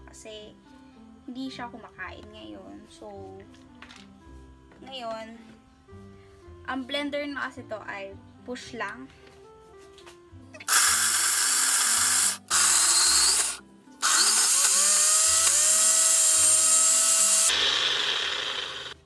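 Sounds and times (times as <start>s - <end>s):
blender motor whine: 10.7s - 19.0s.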